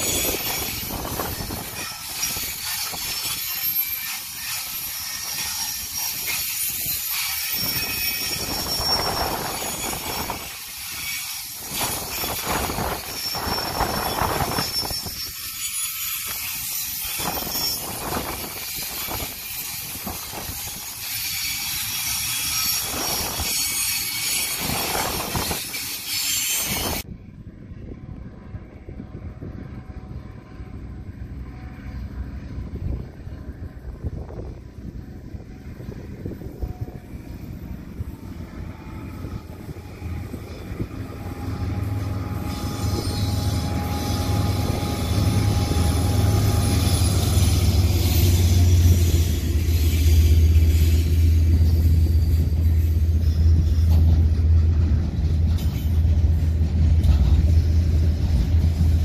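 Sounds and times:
high-pitched wheel squeals: 0:00.0 - 0:27.0, 0:35.8 - 0:54.6
train wheels rumbling on rails: 0:00.0 - 0:59.0.

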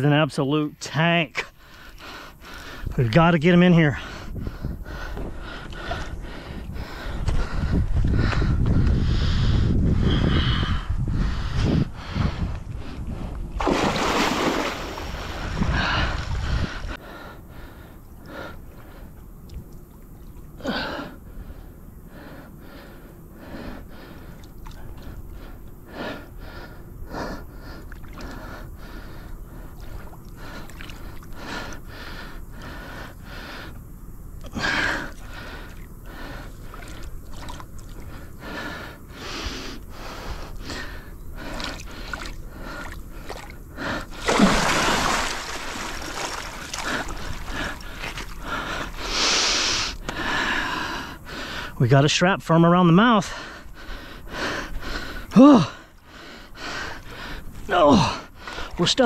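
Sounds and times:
man breathing hard and gasping: 0:01.5 - 0:03.0, 0:03.9 - 0:13.4, 0:15.2 - 0:19.1, 0:20.6 - 0:33.8, 0:34.5 - 0:37.0, 0:46.2 - 0:51.8, 0:53.2 - 0:58.8.

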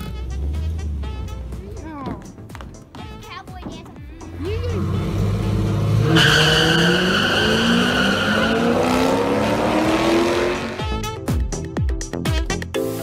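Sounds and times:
car engines revving hard: 0:04.2 - 0:11.0.

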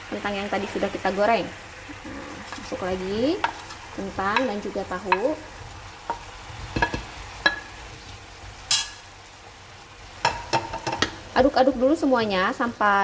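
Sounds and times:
sauce simmering: 0:00.0 - 0:13.0
spatula scraping pan: 0:01.8 - 0:05.5.

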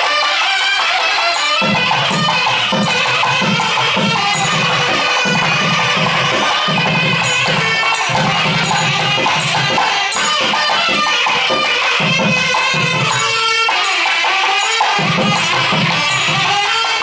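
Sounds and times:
double reed pipes playing melody: 0:00.0 - 0:17.0
small cymbals clinking: 0:00.1 - 0:17.0
drum strokes: 0:01.3 - 0:17.0.

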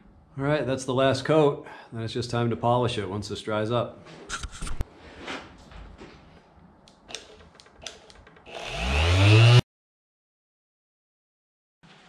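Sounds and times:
faint clicks and handling knocks: 0:05.6 - 0:08.5
sander motor whine: 0:08.5 - 0:09.6.

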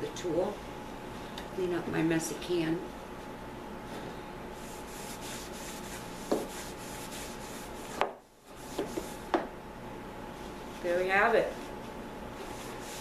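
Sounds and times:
cloth rag wiping metal can: 0:04.6 - 0:07.8, 0:12.4 - 0:13.0.

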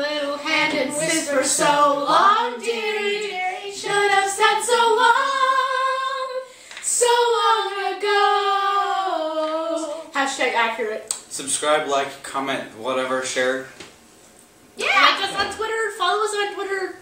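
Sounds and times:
teenagers singing unaccompanied: 0:00.0 - 0:10.2.

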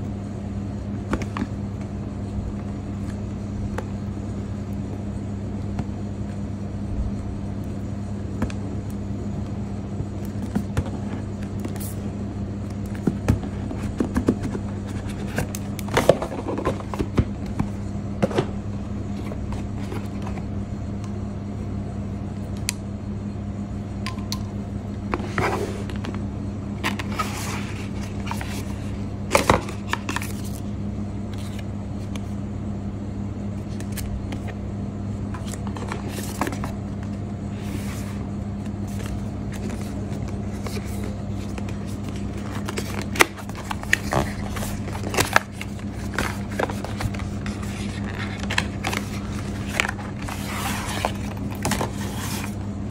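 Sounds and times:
steady low hum: 0:00.0 - 0:52.9
cardboard scraping and tapping: 0:12.8 - 0:18.5, 0:38.8 - 0:52.6.

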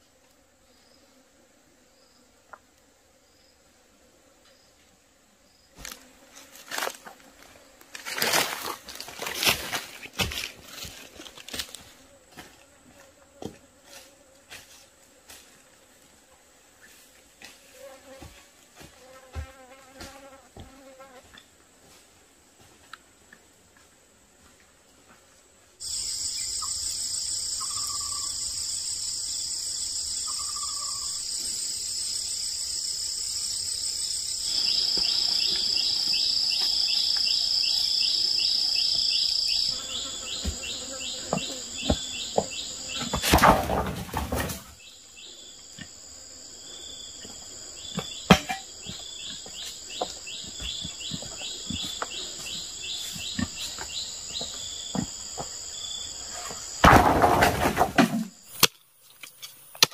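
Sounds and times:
insects high shrill: 0:25.8 - 0:43.0
fast pulsing insect chirp: 0:25.8 - 0:43.1.

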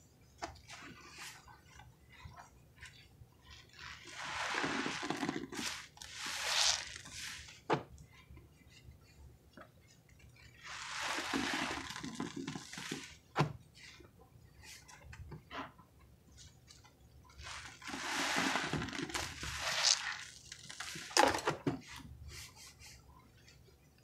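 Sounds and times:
sponges squelching in foam: 0:00.6 - 0:07.7, 0:10.5 - 0:13.3, 0:17.4 - 0:23.0.

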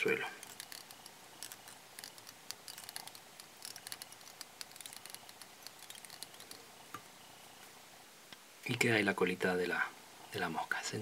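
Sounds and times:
fingers handling hair: 0:00.4 - 0:06.6
thread winding clicks and ticks: 0:00.4 - 0:06.6.

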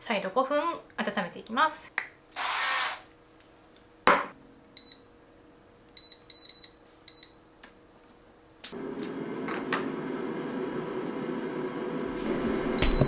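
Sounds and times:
air fryer basket clunk: 0:12.4 - 0:13.0.

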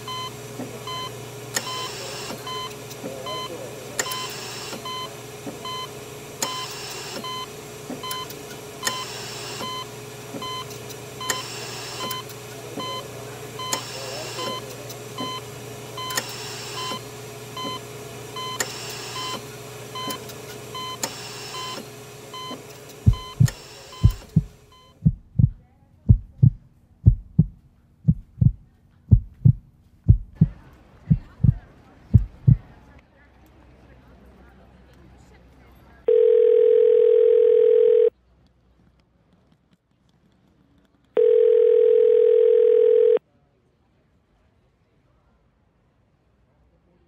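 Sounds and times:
steady low hum: 0:11.6 - 0:33.0
electronic monitor beeping: 0:22.4 - 0:24.9
heartbeat thumps: 0:23.0 - 0:32.7.

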